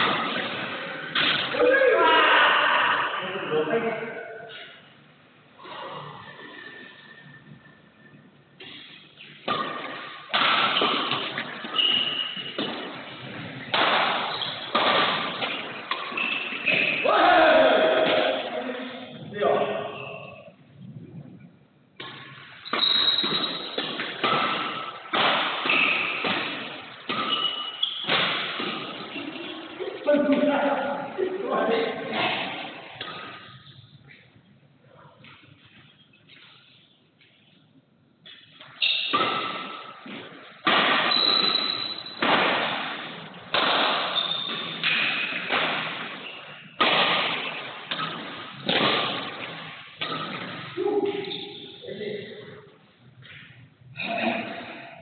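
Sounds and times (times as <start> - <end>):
rackets hitting shuttlecock: 0.0 - 1.6, 8.6 - 17.0, 22.0 - 30.5, 32.0 - 34.2, 38.2 - 51.8.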